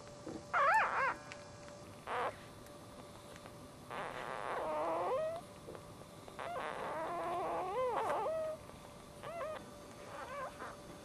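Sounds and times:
puppies squealing and whimpering: 0.5 - 1.3, 4.0 - 5.4, 6.4 - 8.6, 9.2 - 10.8.

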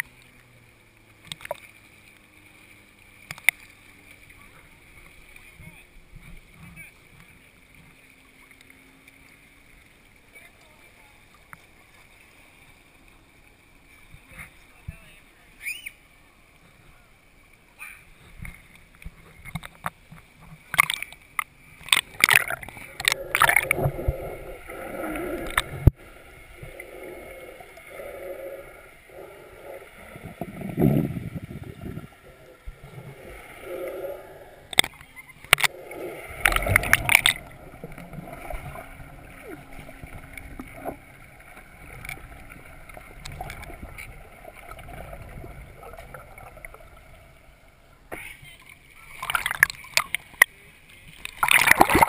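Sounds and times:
water splashing and sloshing: 0.0 - 52.0
muffled underwater gurgling: 21.8 - 50.6, 51.3 - 52.0.

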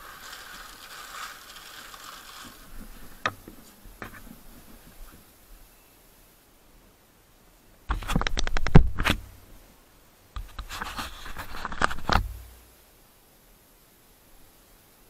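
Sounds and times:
plastic bag crinkling: 0.0 - 3.7.

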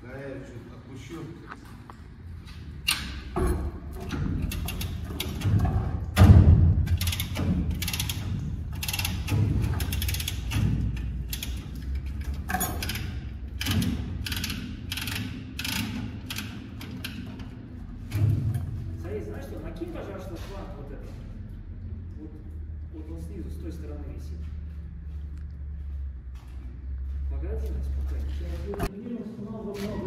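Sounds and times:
hydraulic metallic rattling: 2.8 - 20.3.

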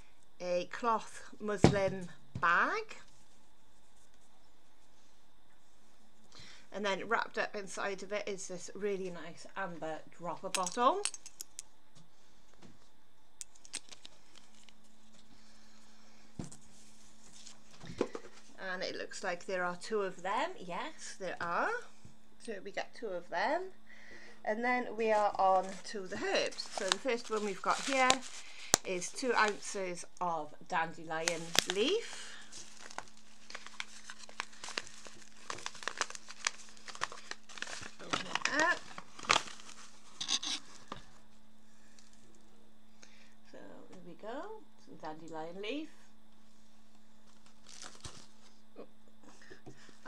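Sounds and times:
faint steady hum: 0.0 - 50.0
paper bag crinkling: 25.6 - 29.8, 31.2 - 40.9, 47.2 - 48.5.

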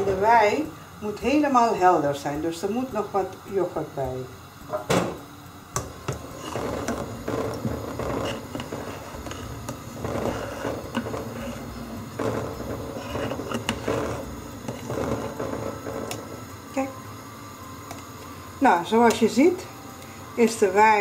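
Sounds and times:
metal spoon scraping a pot: 5.8 - 16.5.

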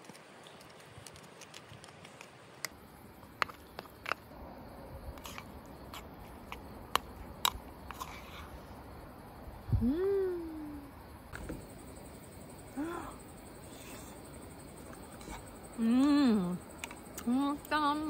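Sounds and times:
spoon scraping crab shell: 5.2 - 8.5.

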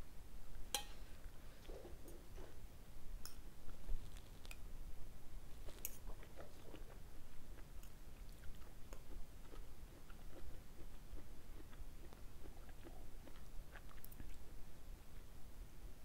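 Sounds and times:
person chewing: 5.6 - 14.4.

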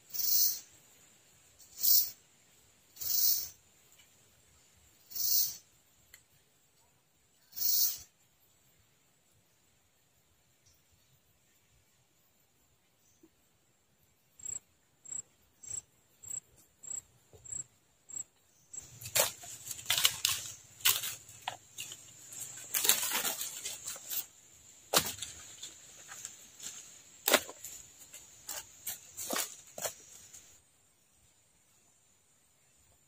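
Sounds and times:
twigs snapping: 18.8 - 24.3, 24.9 - 30.0
dry leaves rustling and crackling: 18.8 - 30.6.

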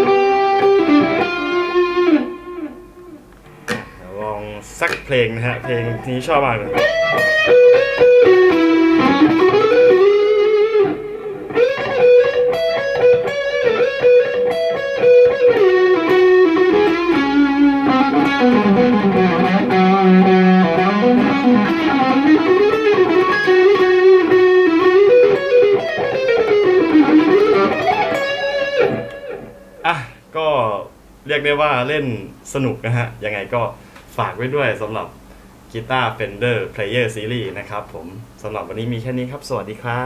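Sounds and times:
electric guitar lead line: 0.0 - 3.9, 5.5 - 30.3.

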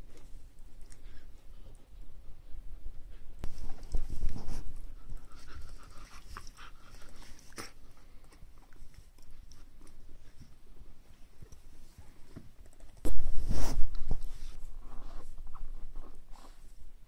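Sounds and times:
puppy panting and snuffling: 0.1 - 10.6.

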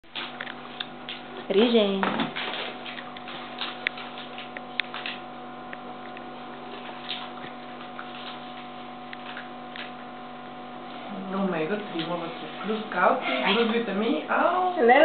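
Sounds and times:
steady electrical hum: 0.0 - 15.0
dog chewing a treat: 2.4 - 10.0.

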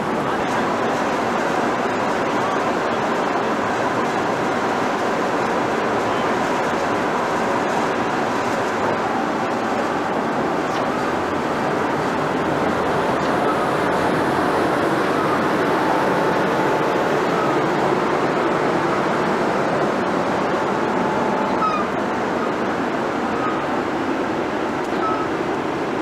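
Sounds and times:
electric locomotive whooshing: 7.2 - 25.2.

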